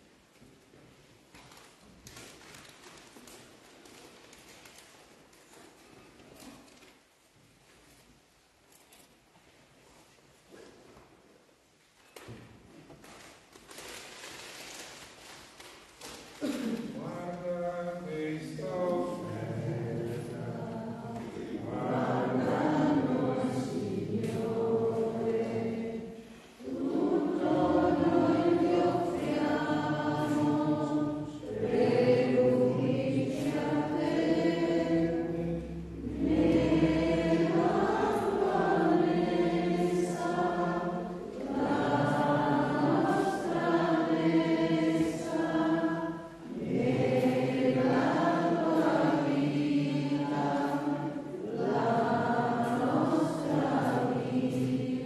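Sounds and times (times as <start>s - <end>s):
voices singing a hymn: 16.5s - 55.0s.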